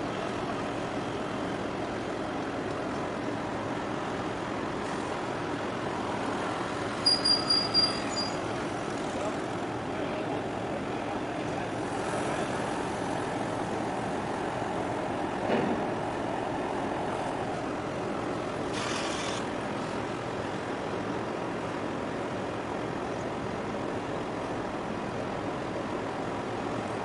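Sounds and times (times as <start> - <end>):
water wash: 0.0 - 22.3
boat engine drone: 0.0 - 27.0
brief hiss: 18.7 - 19.5.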